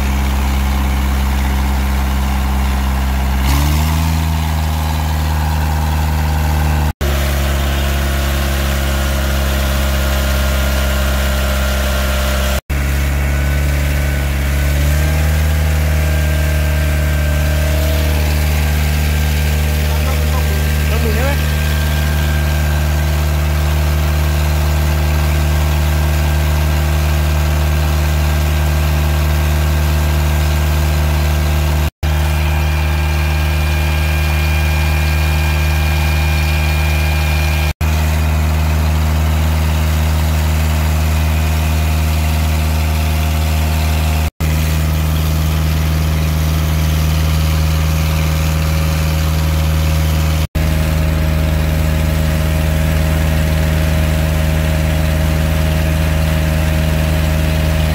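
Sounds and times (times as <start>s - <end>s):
boat engine droning: 0.0s - 57.9s.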